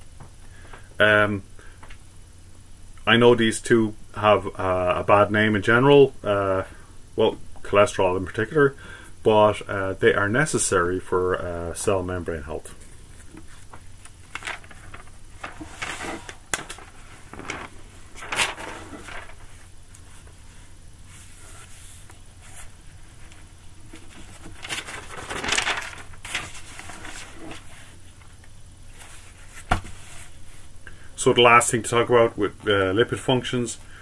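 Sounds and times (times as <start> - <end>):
rustling and handling noises: 12.4 - 30.8.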